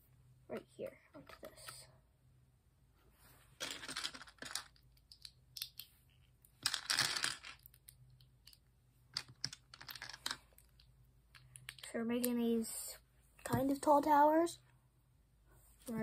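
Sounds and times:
plastic bricks clicking together: 3.6s - 5.9s, 6.5s - 12.3s.

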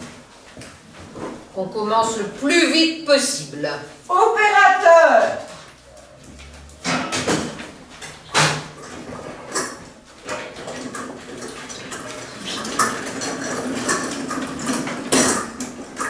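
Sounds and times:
trolley rattling on hard floor: 4.9s - 16.0s.

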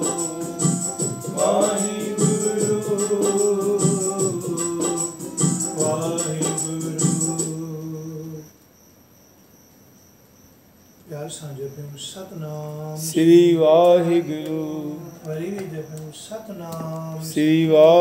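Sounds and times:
held-note drone accompaniment: 0.0s - 8.0s
jingling beat: 0.0s - 8.4s
hymn singing: 0.0s - 8.5s, 12.2s - 18.0s.

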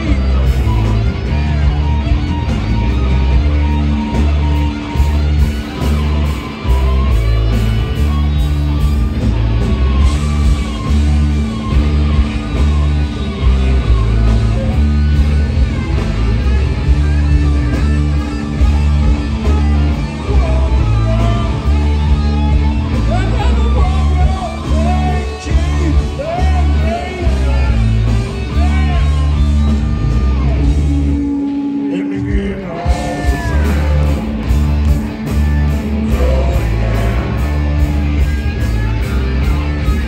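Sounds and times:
heavy repeating bass line: 0.0s - 40.0s
rock band playing: 0.0s - 40.0s
wavering guitar lead: 0.0s - 40.0s.

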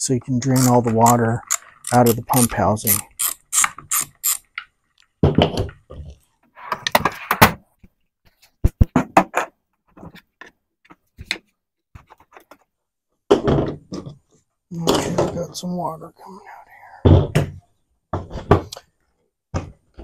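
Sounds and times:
socket ratchet clicking: 0.6s - 4.4s
thuds and knocks on workbench: 5.2s - 5.8s, 13.3s - 14.1s, 17.0s - 18.7s.

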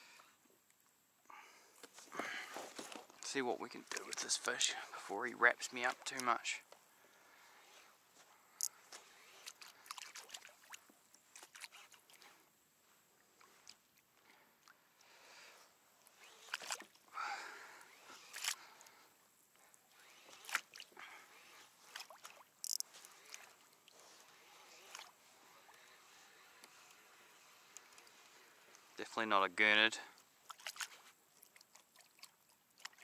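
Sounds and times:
fishing reel clicking: 22.6s - 23.2s.

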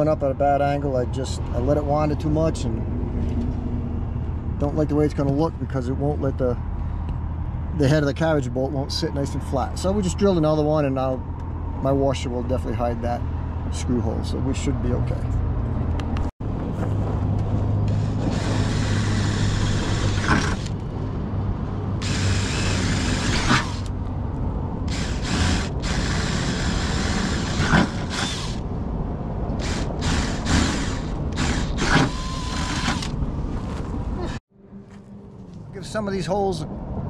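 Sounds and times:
cordless drill boring through steel: 17.9s - 20.7s, 22.0s - 23.9s, 24.9s - 28.6s, 29.6s - 33.1s.

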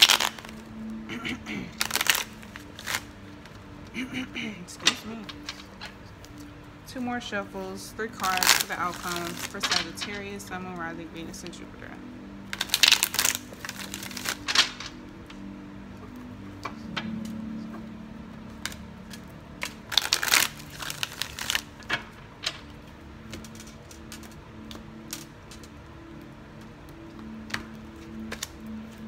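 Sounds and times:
cards riffling: 0.0s - 3.6s, 8.2s - 10.3s, 12.5s - 15.5s, 18.5s - 26.3s, 27.4s - 29.0s.

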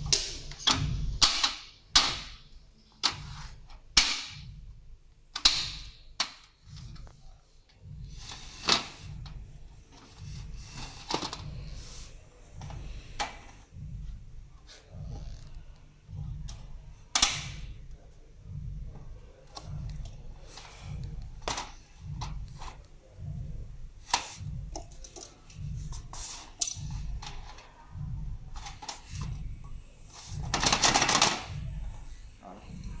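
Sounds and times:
soft low thumps: 0.0s - 1.2s, 4.3s - 5.2s, 6.6s - 8.3s, 9.0s - 26.2s, 26.8s - 30.8s, 31.5s - 33.0s
rustling scrape: 26.1s - 26.6s.

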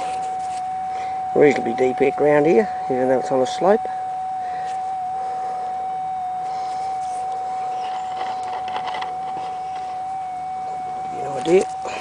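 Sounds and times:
metal detector threshold hum: 0.0s - 12.0s
faint rustles: 4.5s - 12.0s.

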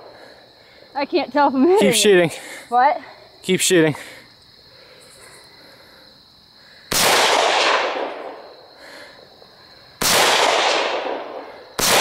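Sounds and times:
rifle shot echoing: 6.9s - 8.4s, 10.0s - 12.0s.

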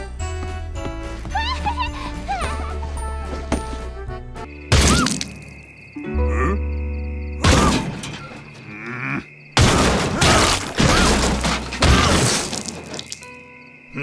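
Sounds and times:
loud thuds and crashes: 7.4s - 8.5s, 9.6s - 13.1s.

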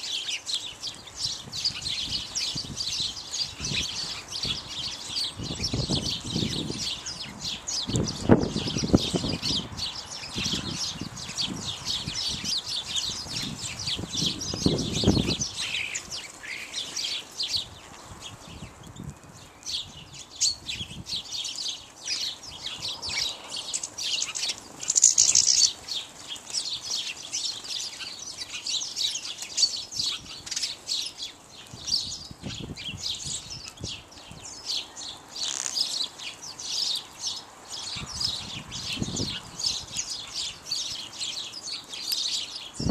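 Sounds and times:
sparrows chirping: 0.0s - 42.9s.

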